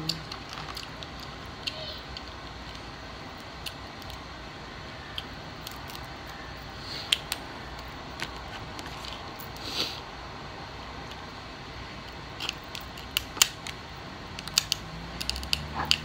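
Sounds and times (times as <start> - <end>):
crab shell clicking and cracking: 0.1 - 2.8, 5.1 - 6.4, 12.4 - 16.0
scissors snipping shell: 14.4 - 16.0.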